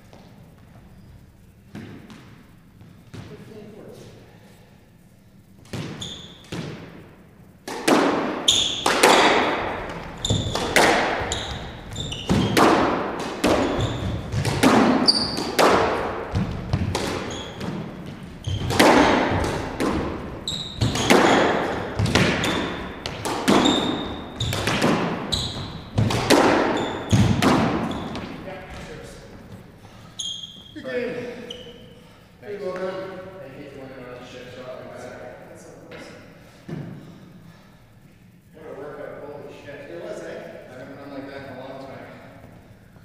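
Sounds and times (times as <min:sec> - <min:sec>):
squash ball hitting rackets: 0:01.7 - 0:03.4, 0:05.6 - 0:29.8
squash ball smacking walls: 0:05.6 - 0:29.7
shoes squeaking on wooden floor: 0:05.8 - 0:06.5, 0:08.4 - 0:31.8.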